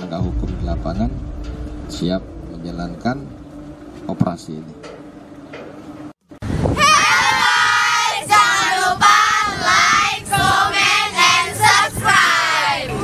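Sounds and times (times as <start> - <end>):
girls singing together: 6.7 - 13.0.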